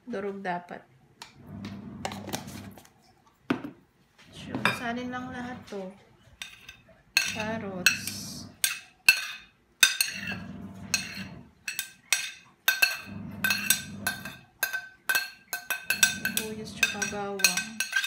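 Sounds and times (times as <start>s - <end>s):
metal spoon clinking on dishes: 6.4s - 18.0s.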